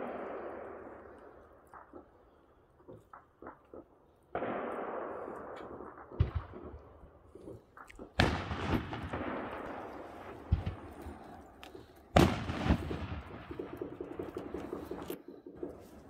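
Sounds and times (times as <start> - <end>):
firework bangs: 0.0 - 2.3, 2.9 - 16.0.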